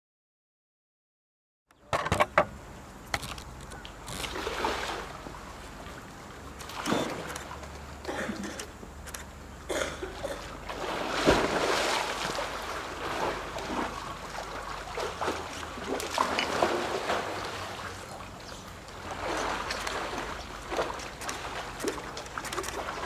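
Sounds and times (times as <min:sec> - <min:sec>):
water splashing: 0:03.2 - 0:08.6, 0:10.0 - 0:23.0.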